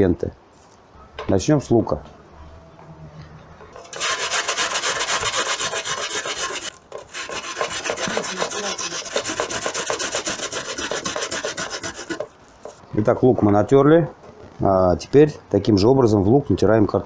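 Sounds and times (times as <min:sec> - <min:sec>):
onion grating on metal grater: 0:03.8 - 0:12.8.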